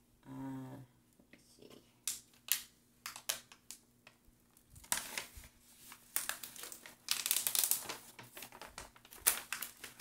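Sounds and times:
plastic film crinkling: 4.5s - 10.0s.

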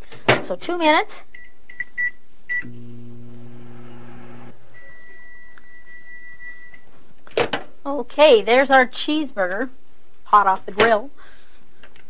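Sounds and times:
microwave oven humming: 2.5s - 4.9s.

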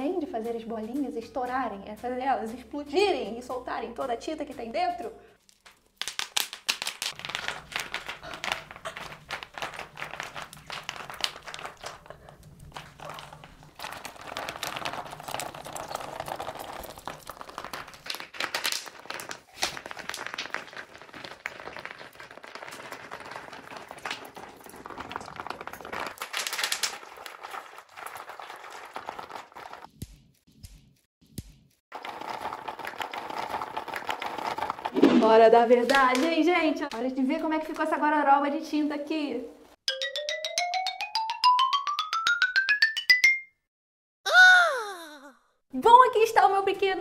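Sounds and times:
bubble wrap popping: 5.4s - 30.2s.

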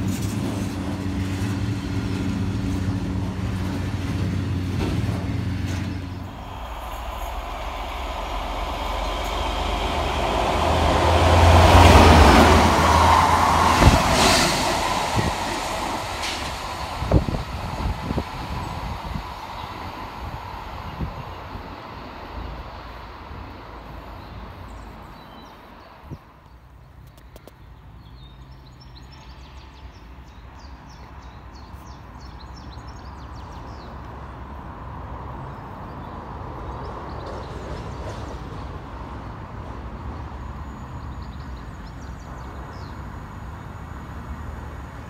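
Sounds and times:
diesel locomotive engine running: 0.0s - 24.0s
railway traffic rumble: 0.0s - 45.0s.

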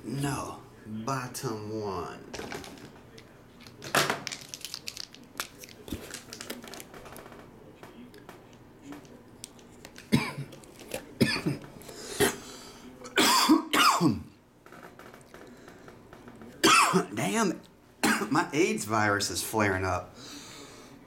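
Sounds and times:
man coughing: 10.1s - 10.5s, 11.2s - 11.6s, 13.2s - 14.3s.

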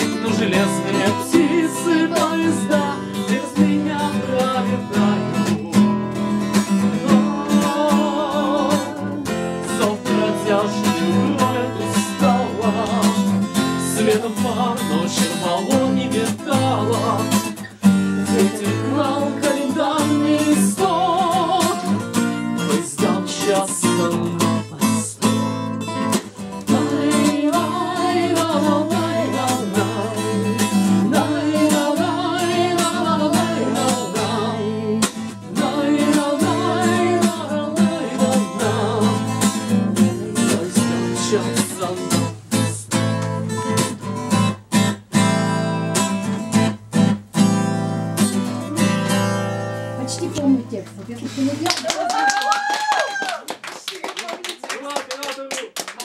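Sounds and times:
person singing wordless melody: 0.0s - 6.0s, 6.9s - 17.5s, 18.2s - 25.4s, 26.6s - 43.0s
acoustic guitar strumming: 0.0s - 51.6s.

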